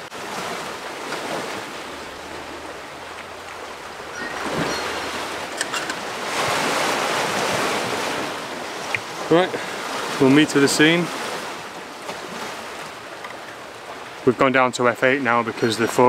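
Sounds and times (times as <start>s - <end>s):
waves washing over rocky shore: 0.0s - 14.6s.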